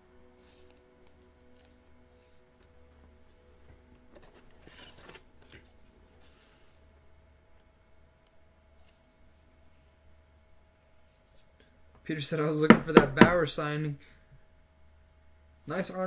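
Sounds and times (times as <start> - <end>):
faint low hum: 0.0 - 16.0
trading cards rustling: 4.0 - 6.7.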